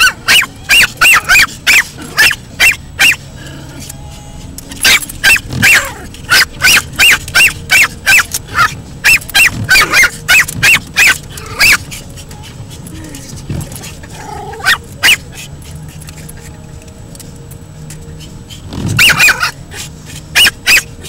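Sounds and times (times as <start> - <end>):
small dog barking: 0.0 - 3.2, 4.8 - 11.9, 14.5 - 15.4, 19.0 - 19.6, 20.3 - 21.0.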